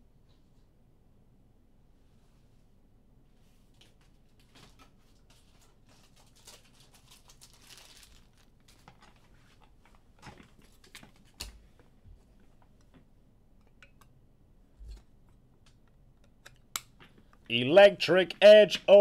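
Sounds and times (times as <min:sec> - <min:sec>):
wrappers crinkling: 0:04.5 - 0:09.8.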